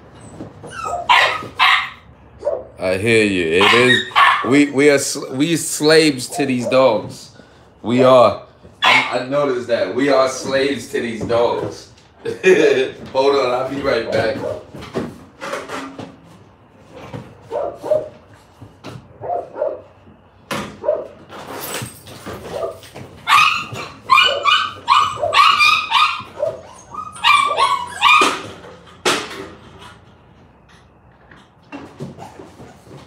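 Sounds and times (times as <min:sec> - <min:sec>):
dog barking and yipping: 0:00.6 - 0:02.8, 0:03.6 - 0:04.6, 0:08.8 - 0:09.3, 0:17.5 - 0:18.2, 0:19.2 - 0:19.9, 0:20.8 - 0:21.2, 0:22.4 - 0:28.6.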